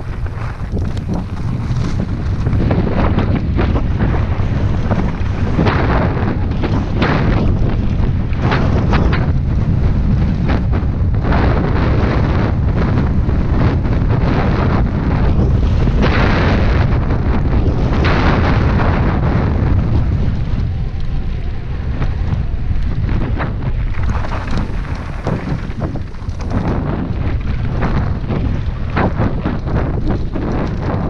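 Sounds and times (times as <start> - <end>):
wind buffeting microphone: 0.0 - 31.0
bike knocking on rough ground: 22.0 - 31.0.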